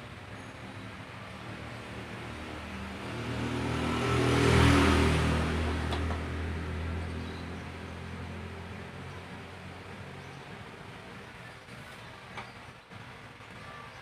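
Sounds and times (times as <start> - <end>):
vehicle passing by: 0.6 - 10.6.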